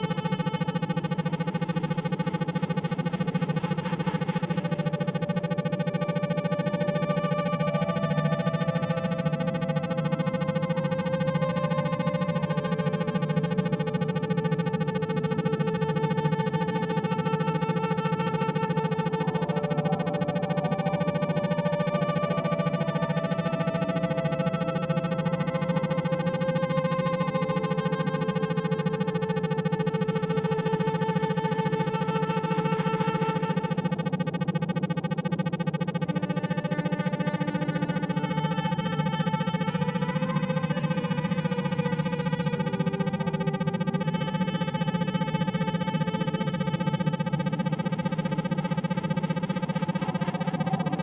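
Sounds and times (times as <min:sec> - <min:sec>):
synthesizer drone music: 0:00.0 - 0:51.0.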